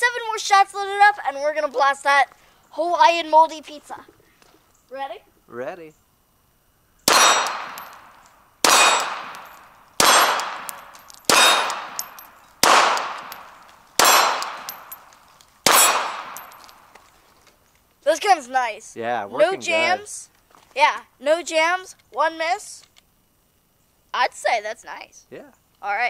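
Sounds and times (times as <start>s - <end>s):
pistol shots: 7.1s - 16.8s
steel plates ringing: 7.1s - 16.8s.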